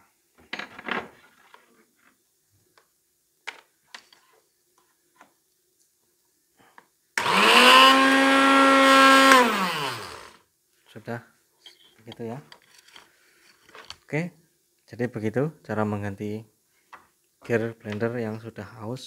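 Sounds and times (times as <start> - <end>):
blender motor running: 7.2 - 10.4
blender spinning down: 7.2 - 10.4.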